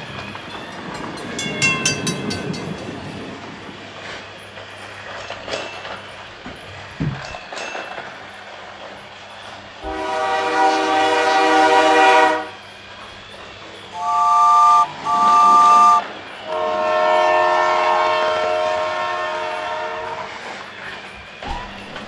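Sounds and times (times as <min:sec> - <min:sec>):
toy trains whirring on track: 0:00.0 - 0:22.0
electronic toy train horn: 0:09.8 - 0:12.6, 0:13.9 - 0:20.3.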